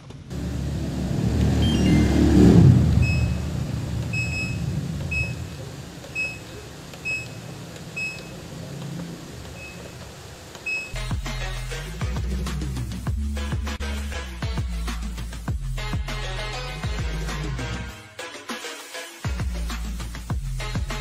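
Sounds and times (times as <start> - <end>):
low rumble: 0.3 - 13.9
electronic button beeps: 3.0 - 3.4, 4.1 - 8.4, 10.7 - 11.0.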